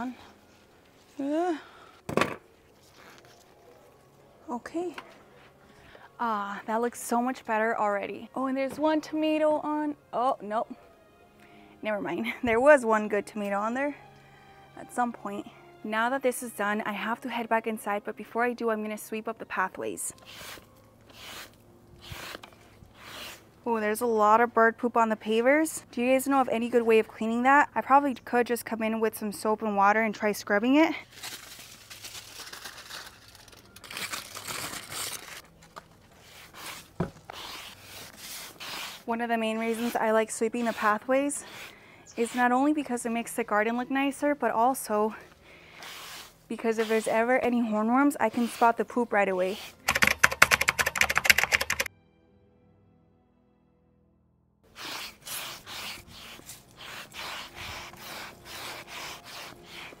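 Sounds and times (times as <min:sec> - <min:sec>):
push broom sweeping pavers: 0:20.1 - 0:23.6, 0:36.0 - 0:49.9, 0:54.7 - 1:00.0.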